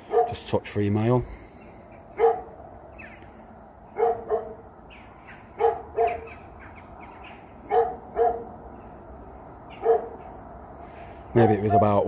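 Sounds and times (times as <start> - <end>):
dog barking: 0.0 - 0.4, 2.2 - 2.5, 3.9 - 4.6, 5.6 - 6.4, 7.7 - 8.5, 9.7 - 10.3.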